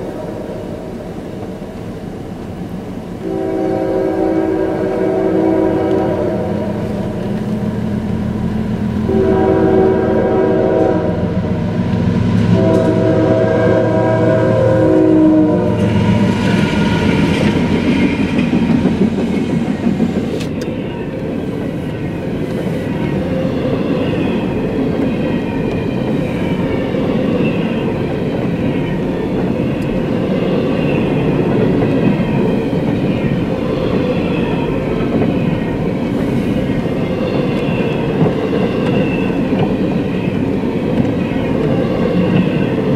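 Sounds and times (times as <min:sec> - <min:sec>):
locomotive horn blasts: 0:03.2 - 0:07.0, 0:09.0 - 0:11.4, 0:12.5 - 0:16.2
train wheels clattering on rails: 0:15.7 - 0:42.9.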